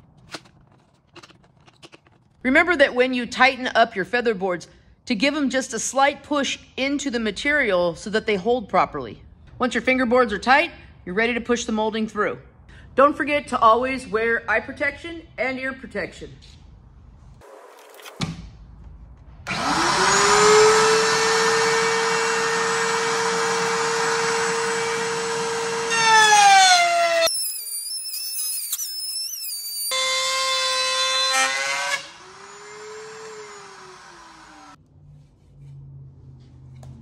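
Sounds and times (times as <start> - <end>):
router cutting wood: 19.5 - 34.8
router high-pitched whine: 19.5 - 34.8.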